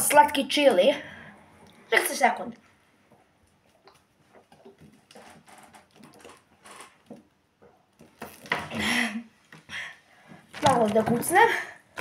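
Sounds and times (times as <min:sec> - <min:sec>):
person gulping water: 0:03.5 - 0:05.3, 0:05.9 - 0:09.1.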